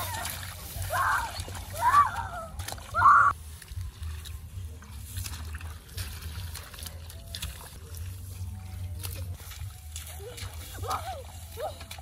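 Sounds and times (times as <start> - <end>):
hands splashing in muddy water: 0.0 - 12.0.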